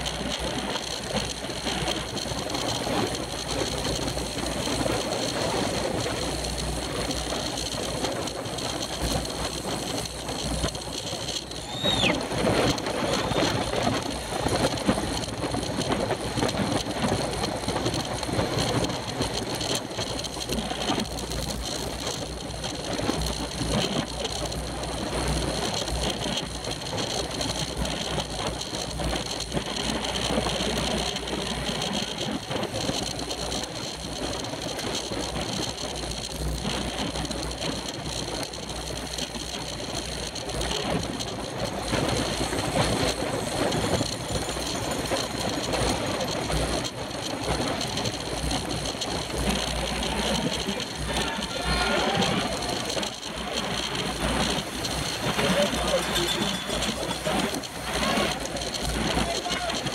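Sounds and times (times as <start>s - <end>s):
bicycle road rumble: 0.0s - 59.9s
wind rush on microphone: 0.0s - 59.9s
high squeak: 11.5s - 12.2s, 56.1s - 57.2s.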